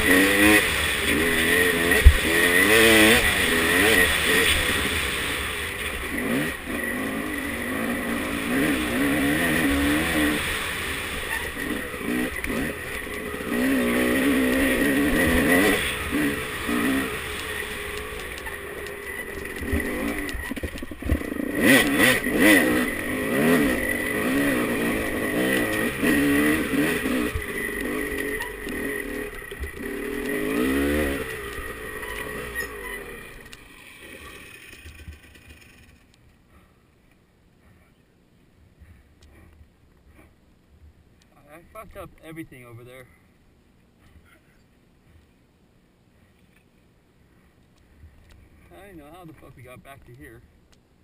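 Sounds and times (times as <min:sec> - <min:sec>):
dirt bike engine revving: 0:00.0 - 0:36.0.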